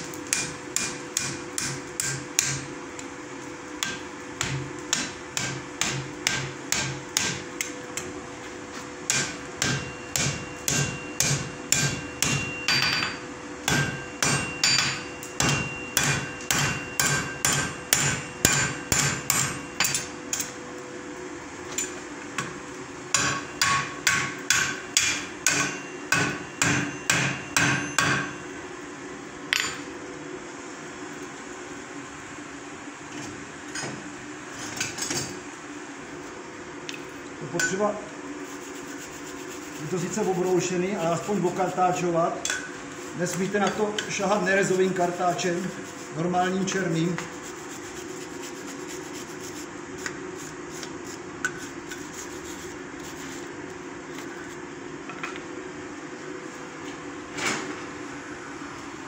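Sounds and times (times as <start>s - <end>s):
hammer striking iron on anvil: 0.3s - 2.6s, 3.8s - 7.7s, 9.1s - 20.5s, 23.1s - 28.4s, 37.6s - 37.8s, 42.4s - 42.7s.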